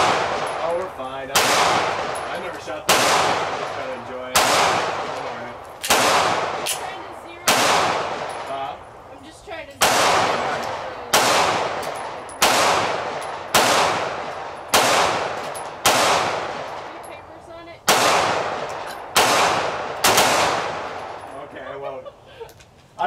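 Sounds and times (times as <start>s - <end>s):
gunshots with long echo: 0.0s - 0.7s, 1.3s - 6.8s, 7.4s - 8.5s, 9.8s - 17.0s, 17.8s - 21.3s.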